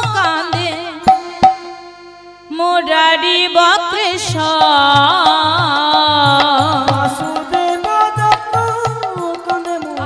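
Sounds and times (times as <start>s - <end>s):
hand drum: 0.0s - 1.9s, 4.2s - 10.0s
harmonium: 0.0s - 10.0s
woman singing with vibrato: 0.0s - 10.0s.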